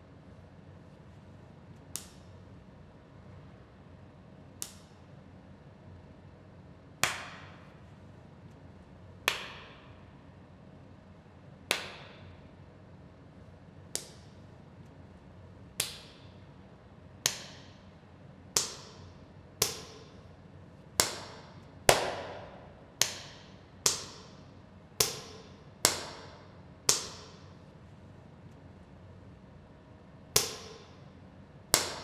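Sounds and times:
sharp echoing cracks: 21.0s - 24.4s.

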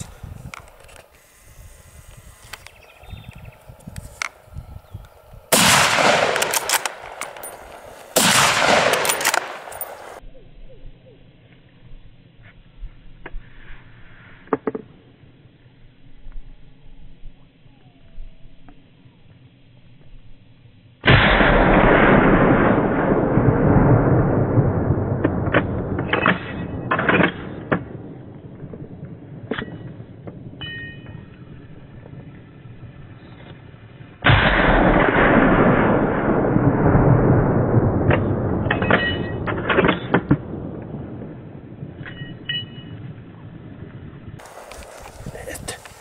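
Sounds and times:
gunshots with rolling echo: 5.5s - 10.2s, 21.1s - 30.6s, 34.2s - 43.6s.

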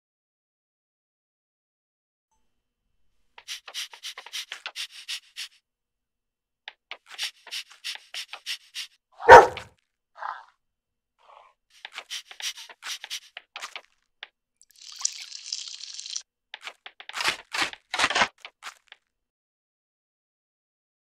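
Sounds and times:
dog panting: 3.4s - 5.6s, 6.9s - 9.7s, 11.8s - 13.8s
dog gruff bark: 9.2s - 10.5s.

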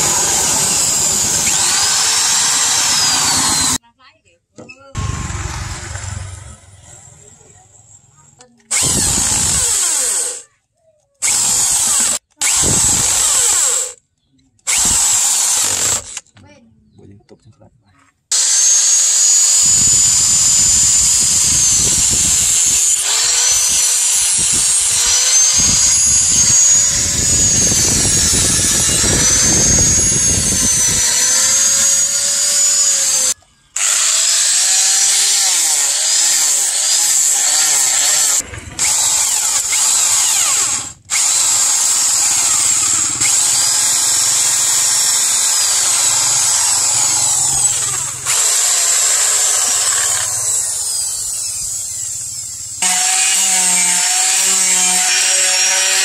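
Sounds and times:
angle grinder motor whine: 0.0s - 3.8s, 5.0s - 7.2s, 18.3s - 56.0s
electric drill boring through wood: 0.0s - 3.8s, 5.0s - 6.9s, 8.7s - 10.4s, 11.2s - 14.0s, 14.6s - 16.3s, 18.3s - 56.0s.

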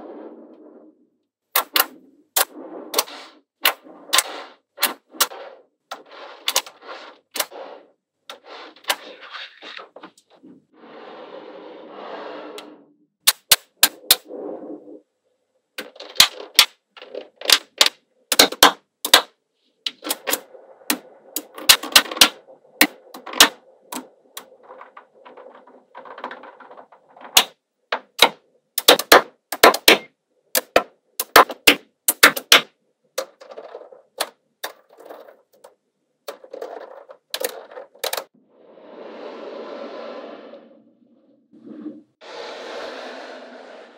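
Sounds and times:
balls rattling: 15.8s - 19.3s, 19.9s - 38.3s.

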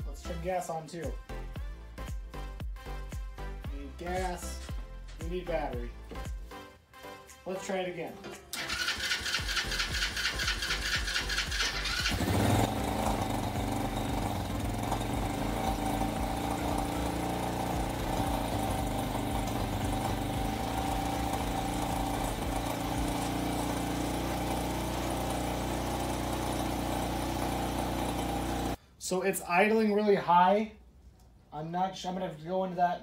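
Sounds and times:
engine cranking on electric starter: 8.5s - 28.8s
engine running at high idle: 8.9s - 28.8s.

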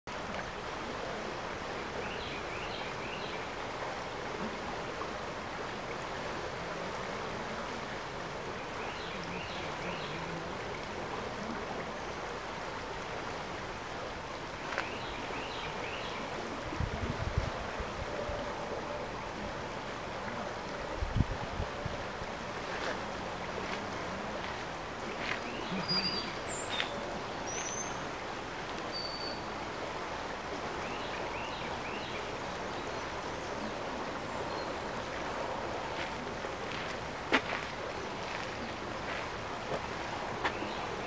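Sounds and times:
creek rushing: 0.1s - 41.0s
wind on microphone: 16.4s - 19.2s, 20.7s - 24.0s.

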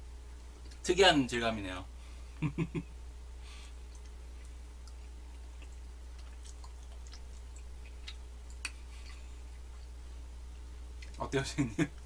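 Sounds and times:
low steady hum: 0.0s - 12.0s
wet mouth clicks chewing: 3.9s - 10.0s.

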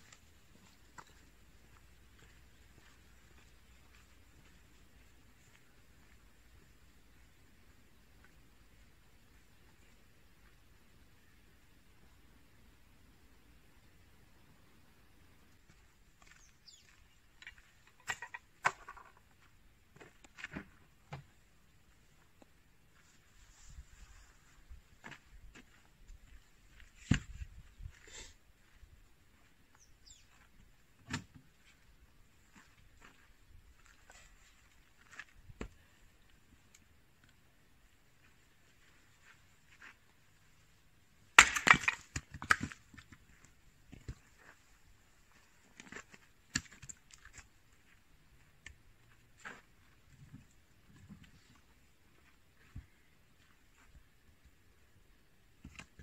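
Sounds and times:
footsteps crunching on dry dirt: 0.0s - 7.0s, 15.6s - 17.9s, 22.9s - 36.2s
axe striking a log: 41.4s - 42.8s.

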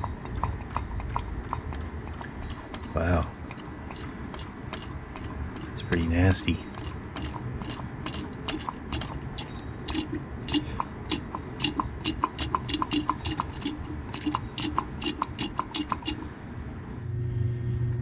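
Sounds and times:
hand vacuum pump clicking and squeaking: 0.0s - 6.1s, 6.7s - 16.2s.

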